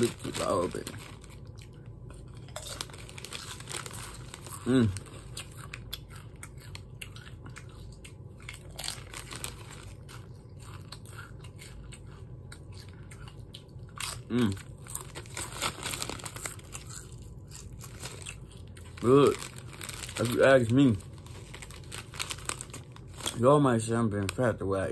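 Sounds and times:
chips crunching and chewing: 0.0s - 24.6s
chip bag crinkling: 0.0s - 24.8s.

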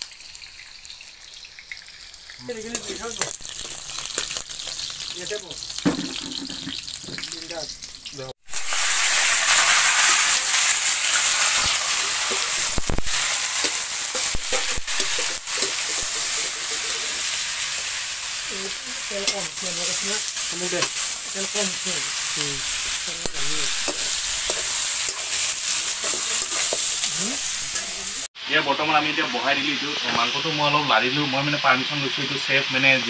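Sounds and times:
chicken sizzling in a wok: 0.0s - 33.0s
metal spatula scraping pan: 13.5s - 17.7s, 22.7s - 28.2s.

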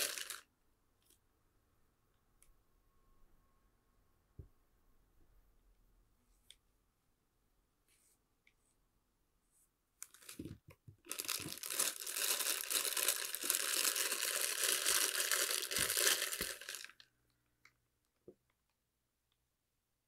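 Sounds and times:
plastic bag crinkling: 0.0s - 0.4s, 10.0s - 17.1s.

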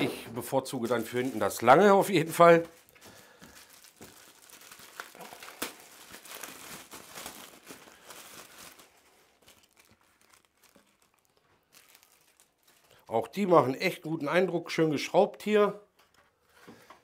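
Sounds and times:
packaging crinkling and rustling: 0.7s - 13.1s.

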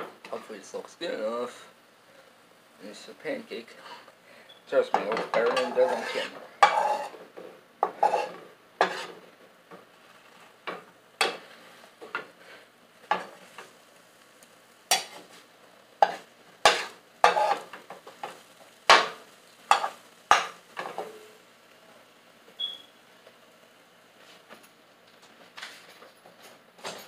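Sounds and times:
utensil scraping a glass bowl: 5.5s - 7.1s.

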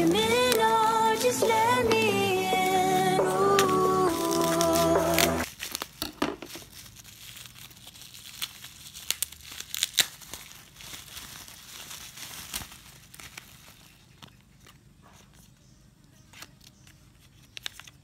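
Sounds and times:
bubble wrap crinkling: 0.0s - 14.8s
bubble wrap crackles: 2.4s - 15.4s, 16.3s - 18.0s.

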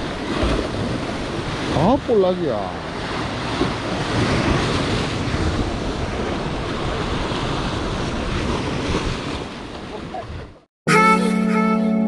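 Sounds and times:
sea waves washing over rocks: 0.0s - 10.5s
wind rumble on microphone: 2.8s - 10.6s.

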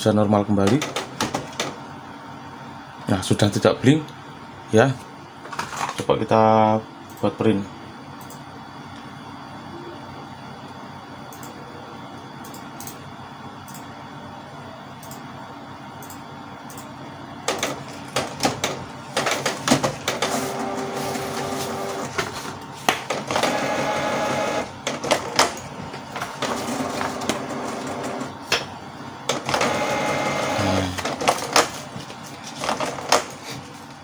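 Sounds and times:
printer paper feed clicks: 0.6s - 1.8s, 17.4s - 28.7s, 29.3s - 31.9s
printer carriage and motor whirring: 0.6s - 2.0s, 16.0s - 34.0s.

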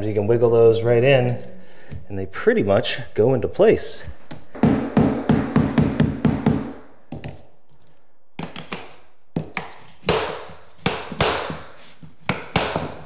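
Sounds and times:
hammer tapping plank: 4.6s - 6.8s, 12.3s - 13.0s.

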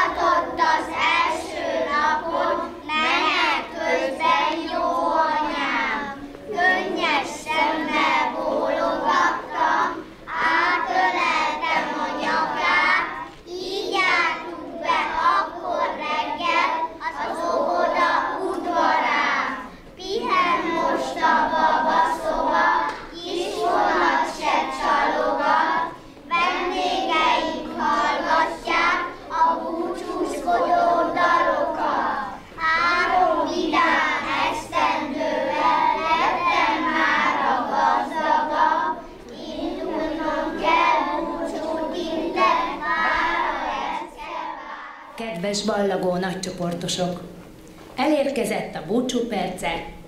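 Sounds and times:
children singing together: 0.0s - 45.2s.

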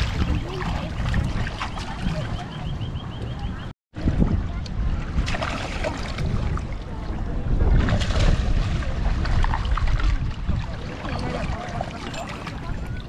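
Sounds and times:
water splashing around wading feet: 0.0s - 2.6s, 5.1s - 6.8s, 7.6s - 13.0s
wind buffeting microphone: 0.0s - 13.0s.

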